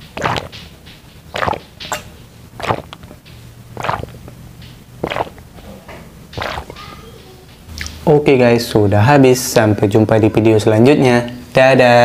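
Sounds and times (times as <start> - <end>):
person gulping water: 0.0 - 0.7, 1.3 - 4.4, 5.0 - 5.6, 6.4 - 6.8.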